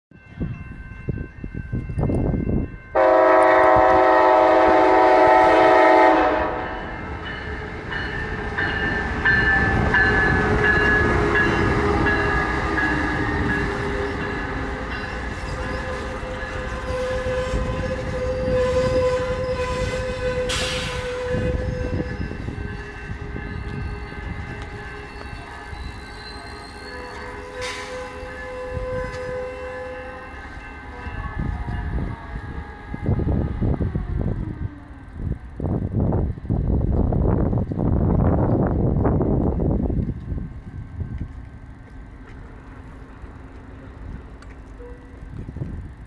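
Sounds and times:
train rolling on rails: 0:00.1 - 0:46.0
train horn: 0:02.9 - 0:07.0, 0:10.2 - 0:34.6, 0:44.7 - 0:45.3
faint squeal-like tone: 0:23.3 - 0:30.1.

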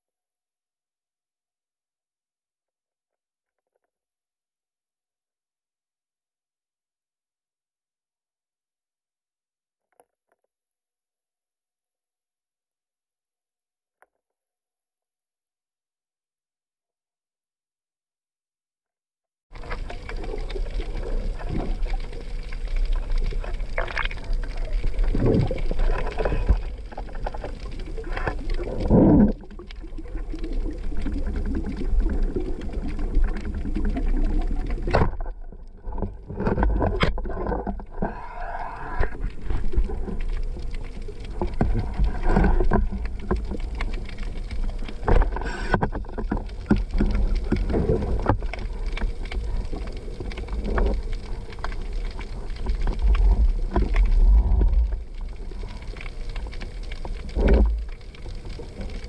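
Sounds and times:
underwater rushing water: 0:19.6 - 0:59.0.

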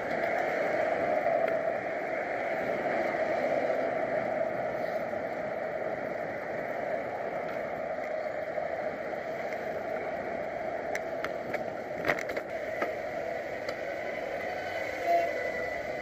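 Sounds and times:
road noise: 0:00.0 - 0:16.0
rushing wind: 0:00.0 - 0:16.0.

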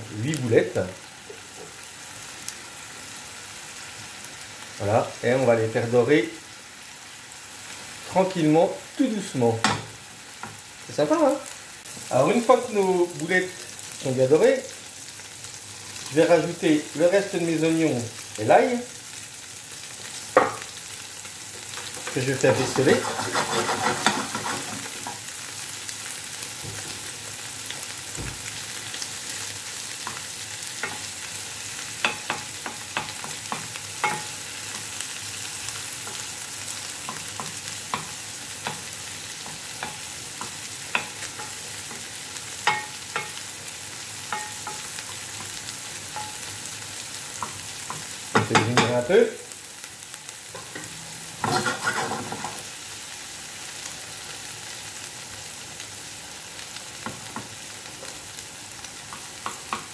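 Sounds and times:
meatballs sizzling in oil: 0:00.0 - 0:59.9
wooden spatula scraping pan: 0:22.0 - 0:25.2, 0:50.6 - 0:52.6.

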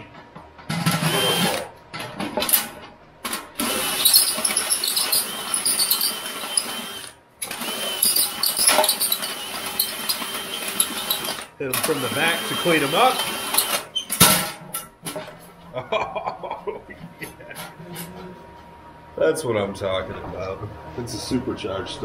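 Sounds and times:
cordless drill boring sheet metal: 0:00.9 - 0:01.7, 0:03.6 - 0:14.0.

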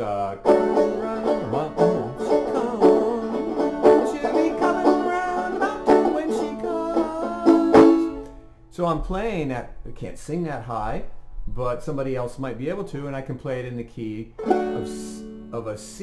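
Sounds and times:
banjo picking a tune: 0:00.0 - 0:08.5, 0:14.4 - 0:16.0.

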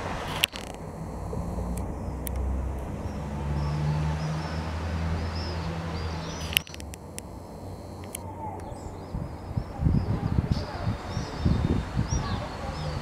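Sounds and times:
birds chirping: 0:00.0 - 0:13.0
vehicle engine humming: 0:00.0 - 0:13.0
sharp click: 0:00.3 - 0:02.9, 0:06.4 - 0:07.3.

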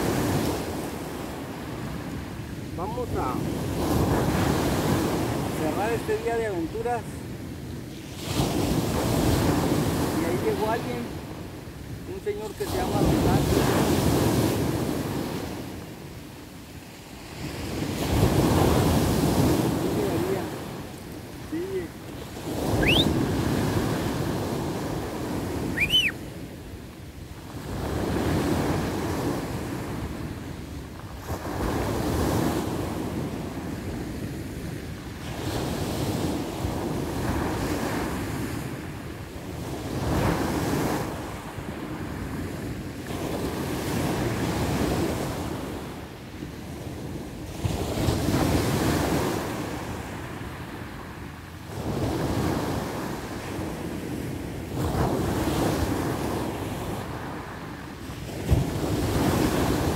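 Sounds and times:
surf breaking on beach: 0:00.0 - 0:16.2, 0:17.0 - 0:59.9
wind buffeting microphone: 0:00.0 - 0:59.9
high rising chirps: 0:22.8 - 0:23.1, 0:25.8 - 0:26.2.

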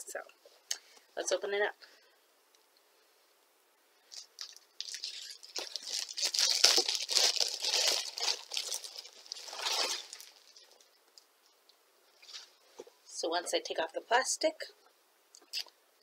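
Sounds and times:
plastic wrap tearing and crinkling: 0:04.1 - 0:10.9.

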